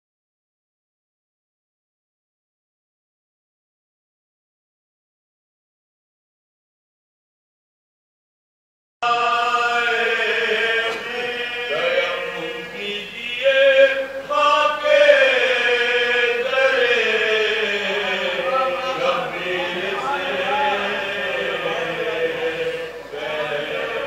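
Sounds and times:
men chanting through microphones: 9.0s - 24.0s.

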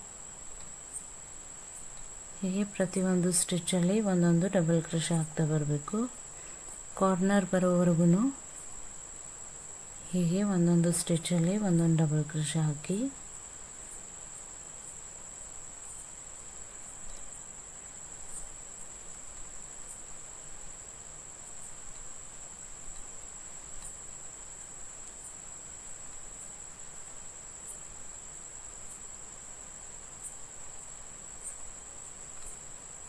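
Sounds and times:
soft ticks: 1.9s - 2.1s, 16.8s - 17.3s, 21.9s - 22.1s, 22.9s - 23.1s, 23.8s - 24.0s, 32.2s - 32.6s.

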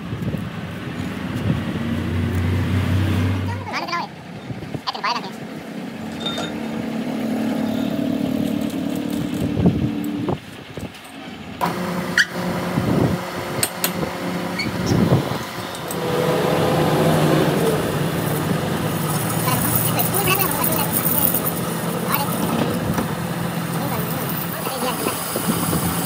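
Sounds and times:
lathe machine hum: 5.4s - 26.0s
metal knocks and clanks: 6.0s - 6.7s
lathe chuck spinning: 11.6s - 26.0s.

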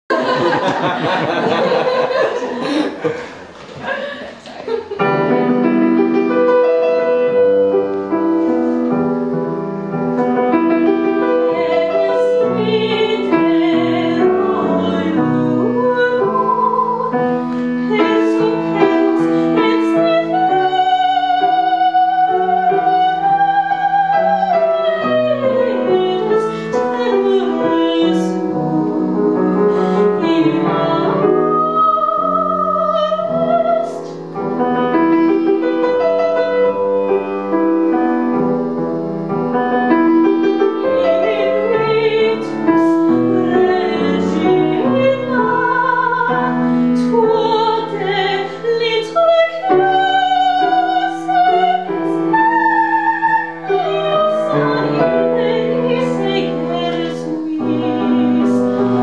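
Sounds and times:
piano accompaniment: 4.8s - 59.0s
woman singing opera: 10.7s - 34.2s, 34.8s - 37.3s, 40.2s - 59.0s.

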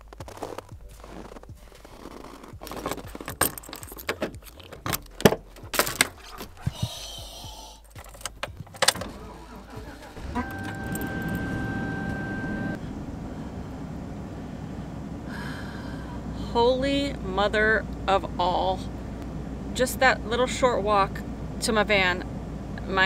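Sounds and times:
van engine starting and running: 0.0s - 23.0s
keys jangling: 2.7s - 6.5s, 7.8s - 9.2s, 10.5s - 11.6s
door lock clicks and rattles: 2.9s - 6.2s, 7.9s - 9.1s
steady high tone: 10.1s - 23.0s.

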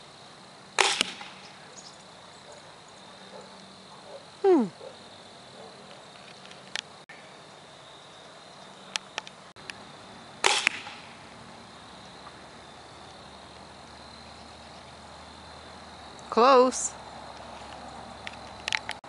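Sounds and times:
arrow hitting target: 0.8s - 1.6s, 10.4s - 11.2s.

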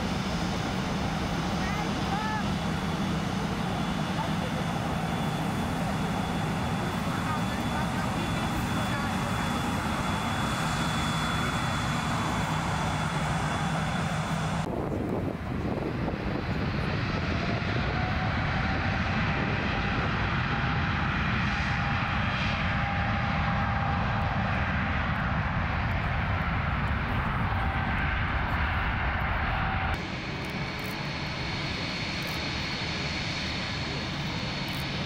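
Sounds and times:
jet engine whine: 0.0s - 35.0s
jet engines roaring at high power: 0.0s - 35.0s.

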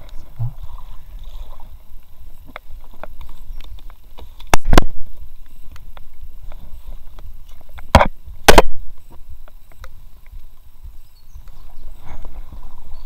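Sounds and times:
light clicks and rustles: 0.0s - 8.2s.

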